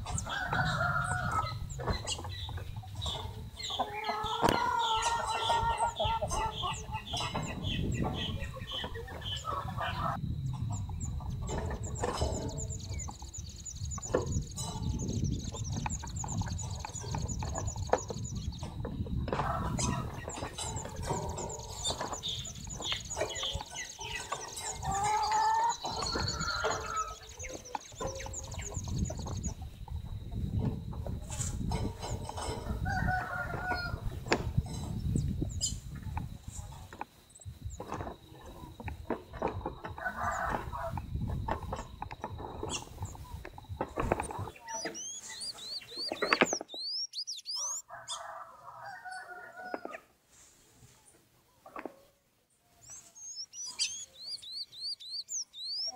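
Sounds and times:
chickens clucking: 0.0s - 55.9s
rustling and clicks of birds feeding: 0.0s - 55.9s
songbirds chirping: 0.0s - 55.9s
high squeaky bird chirps: 44.2s - 47.8s, 52.8s - 55.9s.

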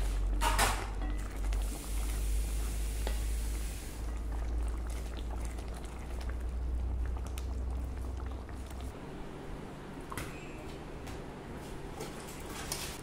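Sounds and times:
low steady hum: 0.0s - 12.6s
curry bubbling in a pan: 0.2s - 8.9s.

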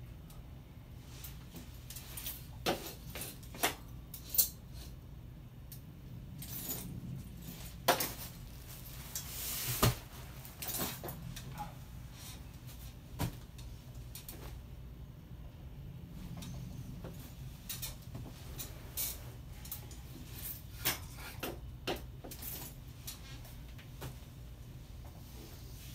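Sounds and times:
folding chair creaking: 6.3s - 14.6s, 16.2s - 23.6s.

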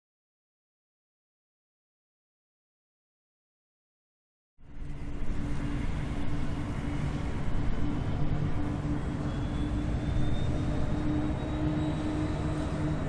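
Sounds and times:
faint high whine: 4.6s - 13.0s
locomotive engine drone: 4.6s - 13.0s.

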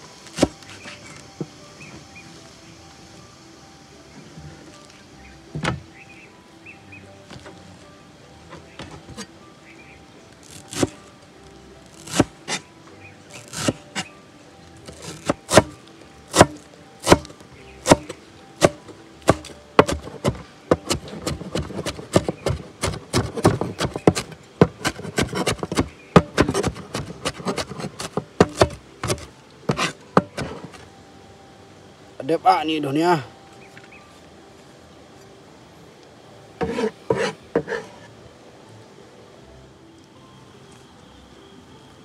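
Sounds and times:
cleaver chopping on plastic board: 12.0s - 12.6s, 13.5s - 13.8s, 14.9s - 30.8s.

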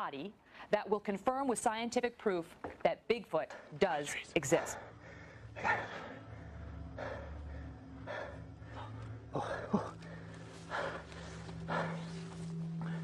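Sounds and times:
steady low hum: 3.5s - 13.0s
person breathing heavily: 4.6s - 13.0s.

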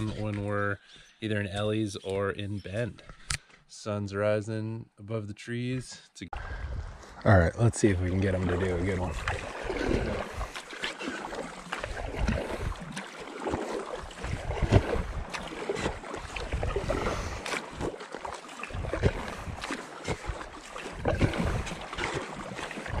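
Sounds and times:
kayak paddle strokes in water: 8.1s - 23.0s.

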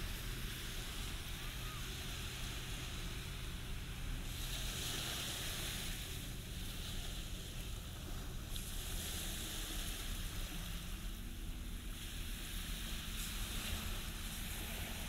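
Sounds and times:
low steady hum: 0.0s - 15.0s
waves washing onto sand: 0.0s - 15.0s.

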